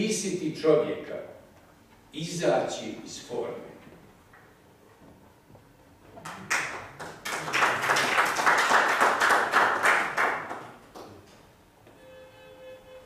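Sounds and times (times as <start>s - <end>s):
audience applauding: 6.2s - 11.2s.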